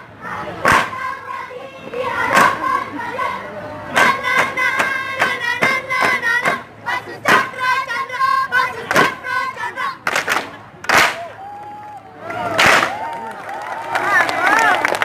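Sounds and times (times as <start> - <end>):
young voices chanting together: 0.0 - 10.2.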